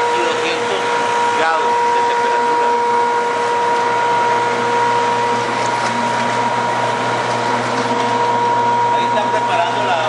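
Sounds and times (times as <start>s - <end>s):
factory machinery running: 0.0s - 10.0s
high machine whine: 0.0s - 10.0s
low machine hum: 0.0s - 10.0s.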